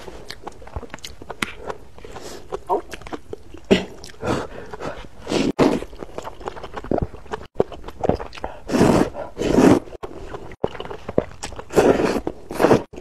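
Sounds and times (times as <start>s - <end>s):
wet chewing: 0.0s - 13.0s
person slurping noodles: 3.7s - 6.0s, 8.2s - 10.5s, 11.5s - 13.0s.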